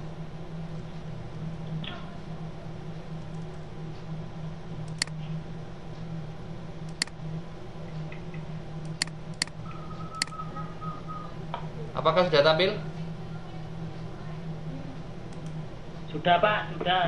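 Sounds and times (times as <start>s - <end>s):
low electrical hum: 0.0s - 17.0s
computer mouse clicking: 4.8s - 5.2s, 6.8s - 7.2s, 8.1s - 10.4s, 15.3s - 15.6s.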